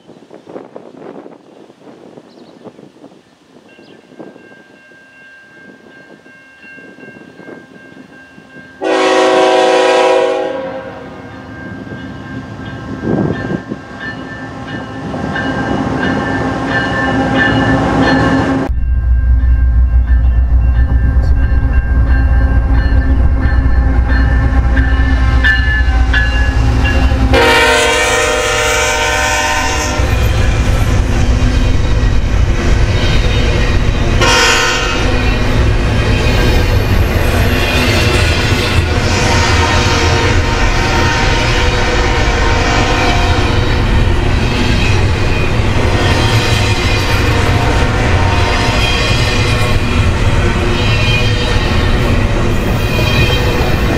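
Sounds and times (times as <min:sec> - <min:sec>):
freight train rumbling past: 0:00.0 - 0:53.9
locomotive air horn: 0:08.8 - 0:11.2, 0:27.2 - 0:30.2, 0:34.2 - 0:35.2, 0:39.0 - 0:43.6, 0:47.3 - 0:49.0.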